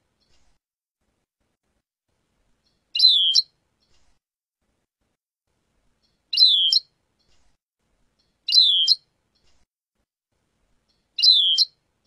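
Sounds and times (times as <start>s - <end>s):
goldfinch calling: 3.0s - 3.5s, 6.3s - 6.8s, 8.5s - 9.0s, 11.2s - 11.7s.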